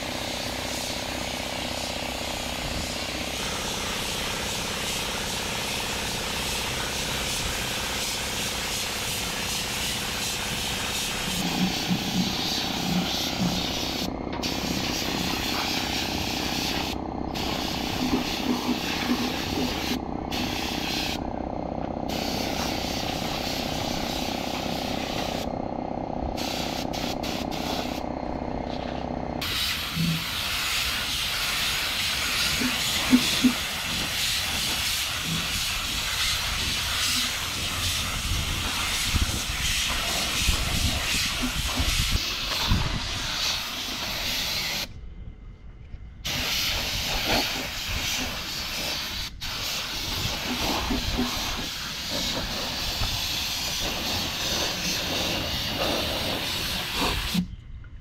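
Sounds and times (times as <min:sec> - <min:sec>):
paint spray gun hissing: 0:00.0 - 0:25.6, 0:26.2 - 0:28.6, 0:29.4 - 0:44.9, 0:46.2 - 0:57.5
low steady hum: 0:44.9 - 0:46.2.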